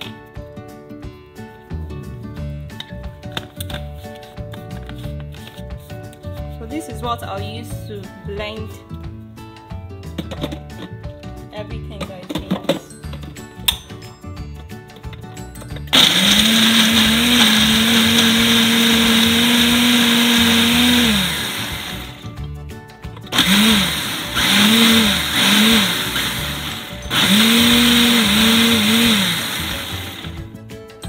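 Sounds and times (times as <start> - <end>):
blender motor blending liquid: 15.9 - 22.3, 23.3 - 30.5.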